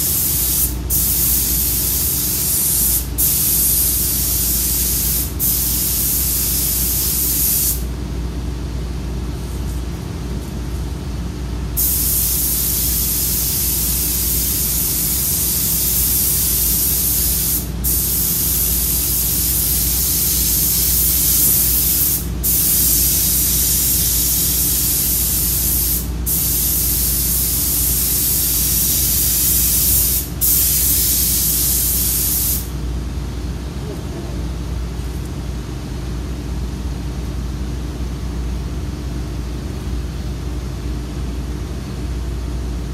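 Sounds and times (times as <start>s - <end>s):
paint spray gun hissing: 0.0s - 7.8s, 11.8s - 32.7s
steady low hum: 0.0s - 42.9s.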